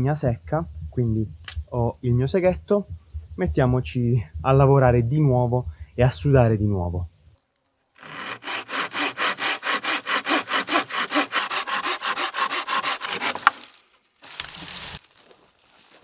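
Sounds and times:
sharp click: 1.4s - 1.7s
hand saw cutting wood: 8.0s - 13.7s.

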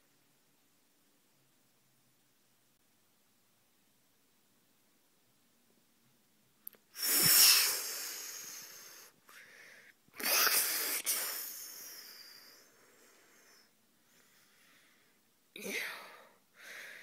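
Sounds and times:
breathy hissing mouth noises: 6.9s - 9.5s, 10.2s - 13.7s.

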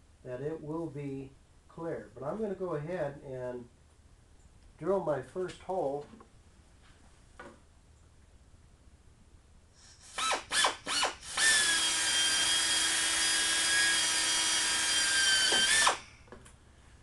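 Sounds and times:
pneumatic air drill: 9.8s - 16.3s.

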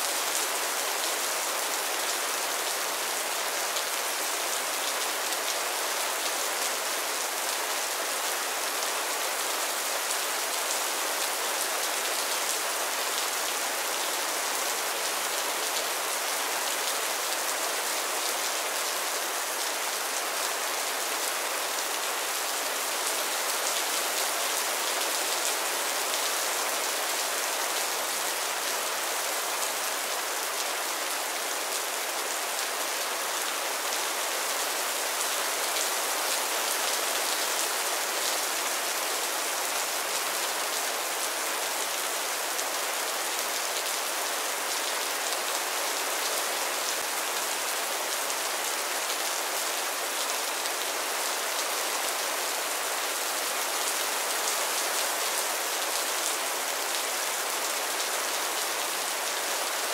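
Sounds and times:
heavy rain falling: 0.0s - 59.9s.

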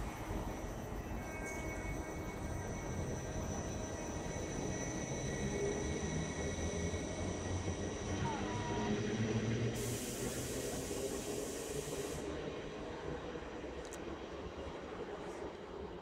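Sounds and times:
burst of hiss: 9.8s - 12.3s.

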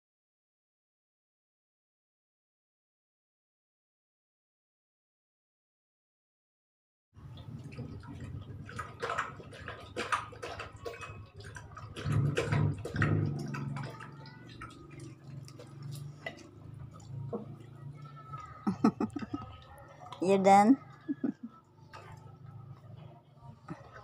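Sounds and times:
dog lapping water: 7.2s - 24.0s.

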